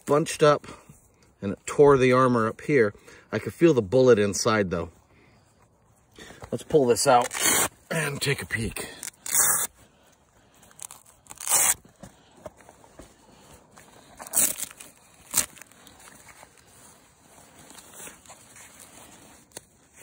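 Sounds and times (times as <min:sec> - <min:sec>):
velcro ripping open: 0:07.2 - 0:08.1, 0:08.8 - 0:09.8, 0:10.7 - 0:11.9, 0:14.0 - 0:16.8
fabric crinkling and rustling: 0:10.7 - 0:20.0.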